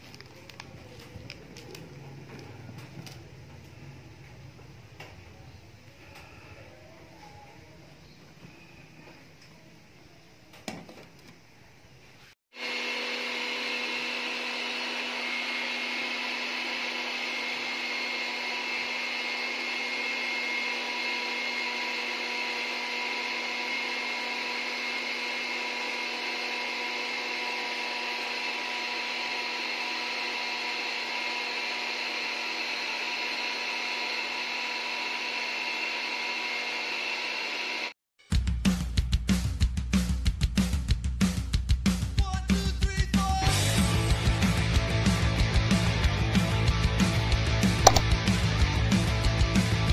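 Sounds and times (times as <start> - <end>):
single click: 47.9 - 48.1.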